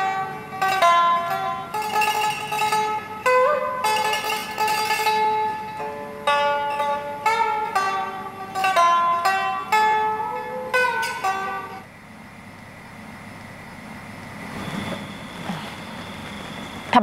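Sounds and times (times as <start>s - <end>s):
plucked lute melody: 0.0s - 11.9s.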